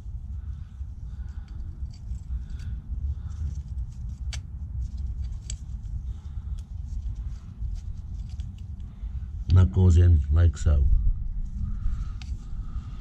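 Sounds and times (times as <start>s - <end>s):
steady low rumble: 0.0s - 13.0s
brake pads clicking and scraping: 1.1s - 9.0s.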